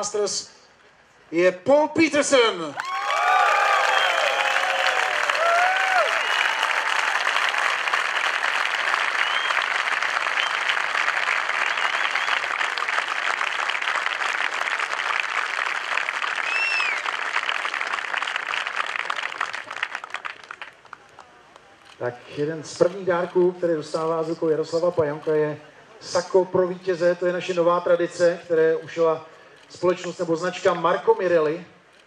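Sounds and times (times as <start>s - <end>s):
crowd applauding: 2.8s - 21.6s.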